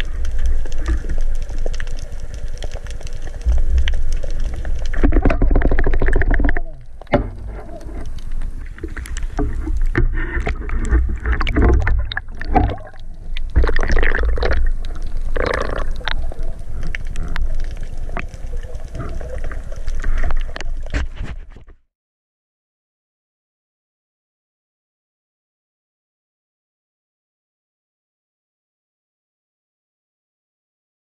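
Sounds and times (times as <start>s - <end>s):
low underwater rumble: 0.0s - 21.2s
knocks clicks and scrapes underwater: 0.0s - 21.8s.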